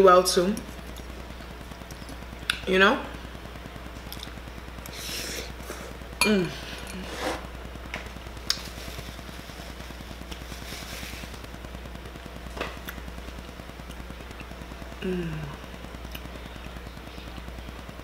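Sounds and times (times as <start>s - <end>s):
desk fan humming: 0.0s - 18.0s
person humming mm: 4.9s - 7.2s, 15.0s - 15.7s
person slurping noodles: 6.9s - 7.4s.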